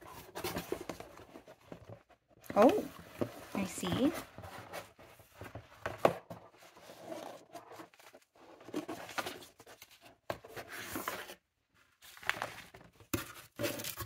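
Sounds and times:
paper packaging rustling: 0.0 - 14.0.

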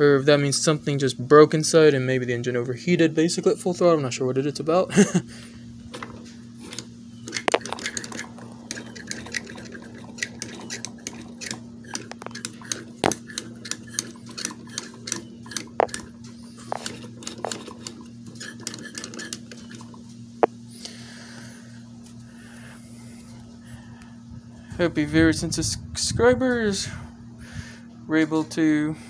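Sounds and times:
faint steady hum: 0.0 - 29.0
engine squeaks and metallic clicks: 5.9 - 20.6.

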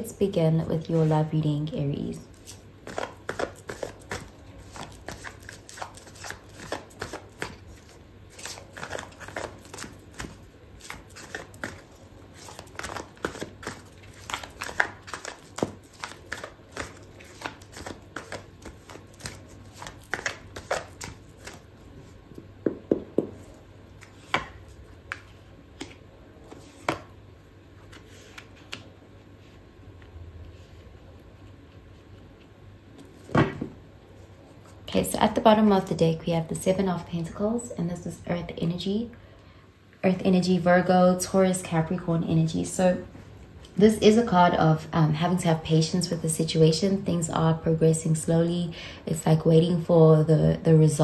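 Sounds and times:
cards being shuffled: 2.3 - 21.7, 23.2 - 27.1, 27.8 - 29.6.

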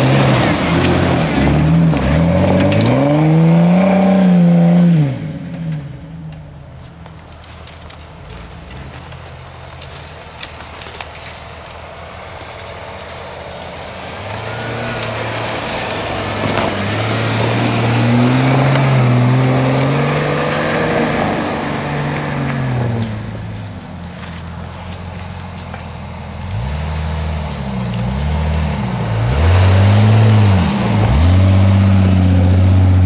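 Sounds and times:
car engine revving: 0.0 - 6.3, 13.5 - 25.2, 26.4 - 33.0.

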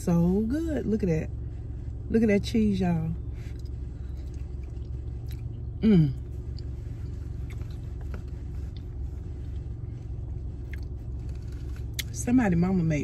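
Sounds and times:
low rumble inside car: 0.0 - 13.0
faint chewing clicks: 3.5 - 5.7, 10.6 - 12.1
woman humming mmm: 5.8 - 6.2.

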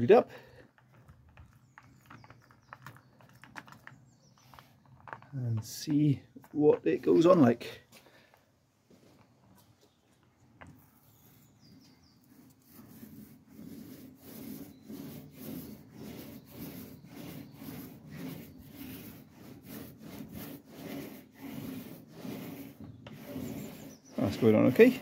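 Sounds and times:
paint roller rubbing: 10.7 - 25.0.

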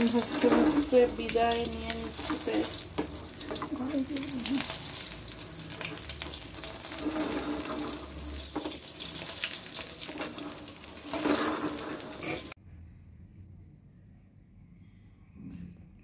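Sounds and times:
egg sizzling in frying pan: 0.0 - 12.6
spatula scraping pan: 0.0 - 12.6.

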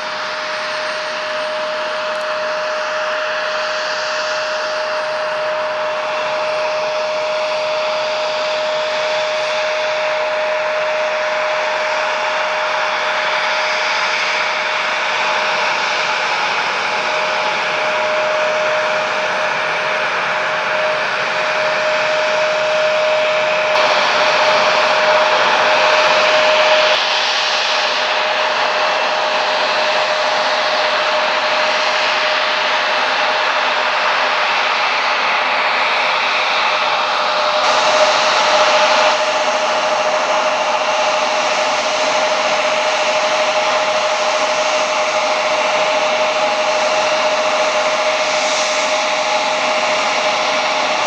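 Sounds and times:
jet engine whine: 0.0 - 51.0
jet engines roaring: 0.0 - 51.0.

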